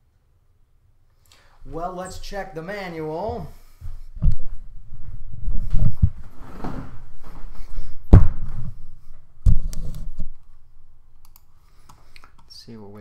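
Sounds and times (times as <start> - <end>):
thuds and knocks: 8.1 - 8.8.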